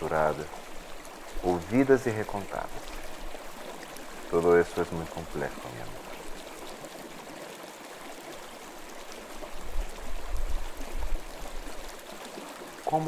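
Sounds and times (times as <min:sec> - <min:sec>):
stream flowing over rocks: 0:00.0 - 0:13.0.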